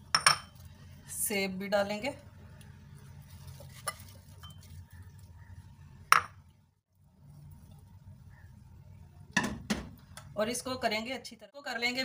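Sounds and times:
clink against glass bowl: 0.1s - 0.5s.

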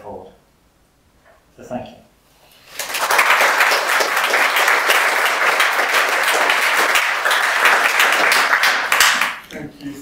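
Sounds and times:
audience applauding: 2.7s - 9.5s.

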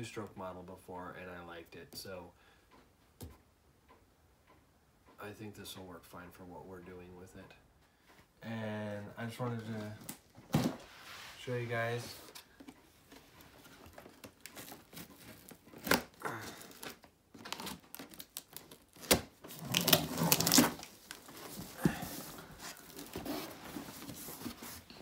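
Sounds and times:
cardboard scraping and rustling: 9.6s - 25.0s
knife slitting packing tape: 14.6s - 20.9s.

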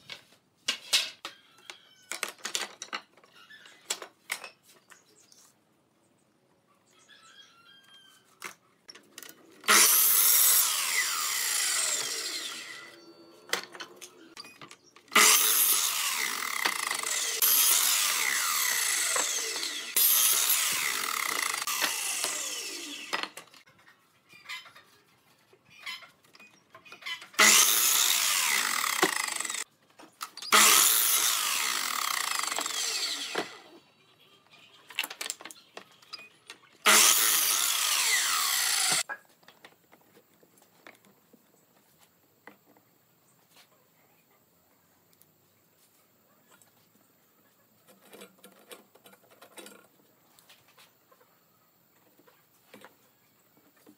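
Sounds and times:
miter saw cutting wood: 9.6s - 13.2s, 15.1s - 23.6s, 27.4s - 29.6s, 30.5s - 33.7s, 36.8s - 39.1s
saw blade winding down: 9.6s - 13.4s, 15.1s - 23.6s, 27.4s - 29.6s, 30.5s - 33.7s, 36.8s - 39.0s.

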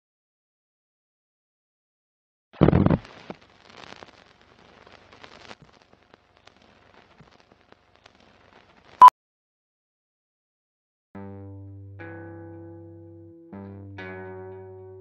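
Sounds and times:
film crackles and pops: 2.6s - 9.1s.

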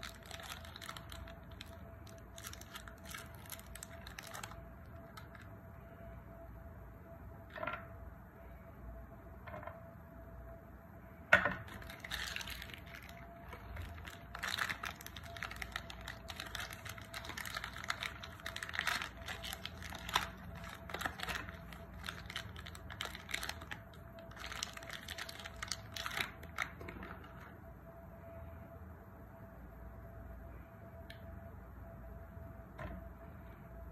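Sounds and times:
plastic wrapper crinkling and tearing: 0.0s - 5.5s, 11.6s - 27.4s.

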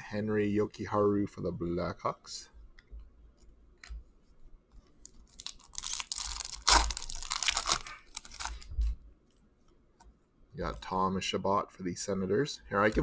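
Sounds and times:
wrapper tearing and crumpling: 5.3s - 8.7s.

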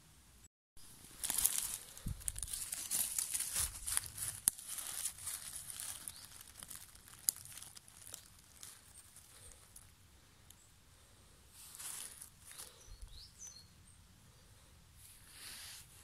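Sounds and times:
dry leaves and twigs rustling: 0.8s - 10.6s, 11.5s - 13.6s.

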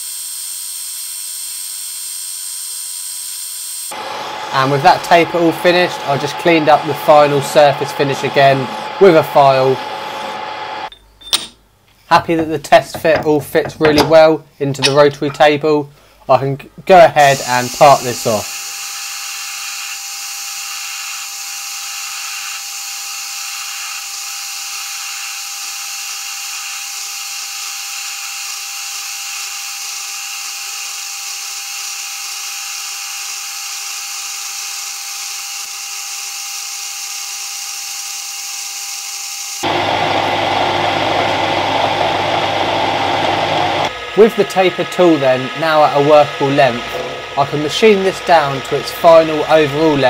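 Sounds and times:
lathe motor whine: 0.0s - 11.0s, 17.3s - 50.0s
rough machine noise: 3.9s - 11.0s, 39.6s - 50.0s.

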